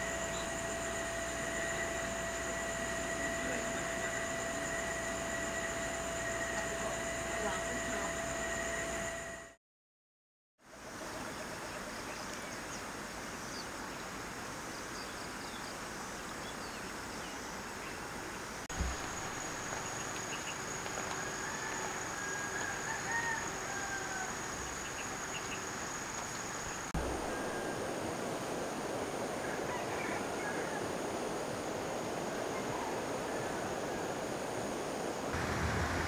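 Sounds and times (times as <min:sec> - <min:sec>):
high-pitched insect drone: 0:00.0 - 0:09.6, 0:18.8 - 0:28.1
flowing water: 0:18.8 - 0:21.0
distant rooster crowing: 0:20.4 - 0:25.5, 0:27.0 - 0:28.1, 0:29.3 - 0:31.0, 0:32.2 - 0:34.3.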